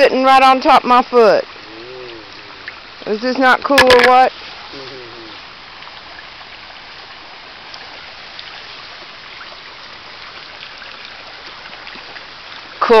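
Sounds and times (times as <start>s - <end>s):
stream water running: 0.0s - 13.0s.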